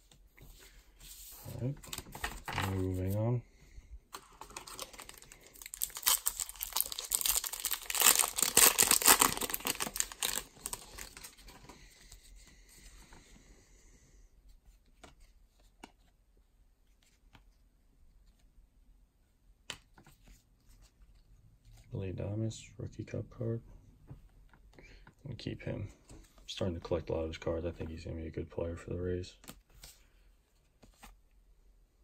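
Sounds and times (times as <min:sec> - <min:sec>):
wrapper tearing and crinkling: 0:04.5 - 0:11.3.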